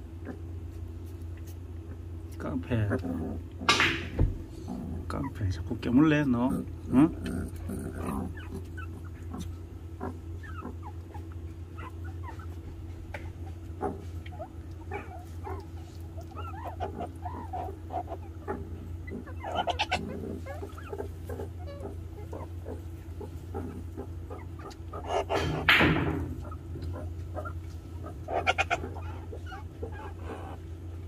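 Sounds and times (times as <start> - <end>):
steady low hum: 0.0 - 31.0
meerkats squeaking and chirping: 6.6 - 31.0.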